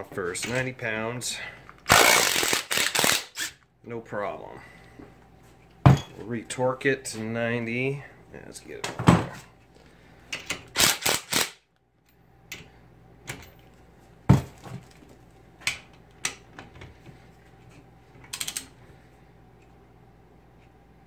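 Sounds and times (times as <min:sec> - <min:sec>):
tools knocking and clicking: 0:18.2 - 0:18.7
ratchet clicks: 0:18.3 - 0:18.7.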